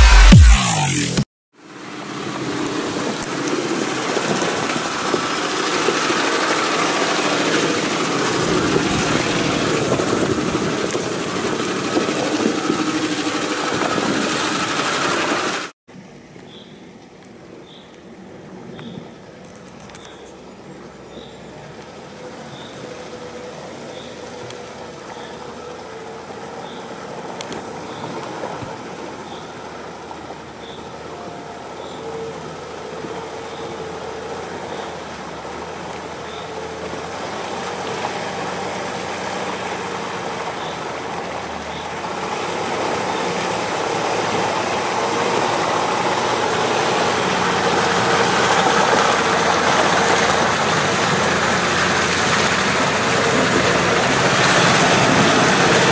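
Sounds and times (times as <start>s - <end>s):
suv engine running slowly: 1.6s - 55.9s
tyres splashing in mud: 1.9s - 15.7s, 21.8s - 55.9s.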